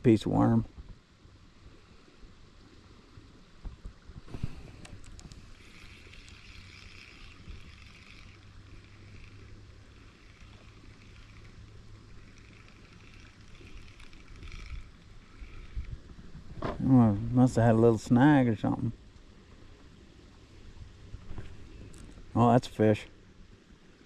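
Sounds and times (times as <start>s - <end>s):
fishing reel whirring: 4.3s - 16.6s.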